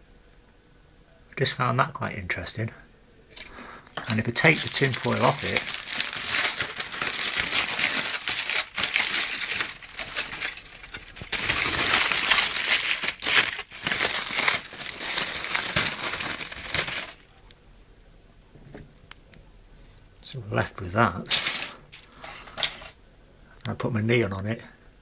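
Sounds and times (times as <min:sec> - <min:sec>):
aluminium foil crinkling: 0:03.3 - 0:17.3, 0:21.2 - 0:23.0.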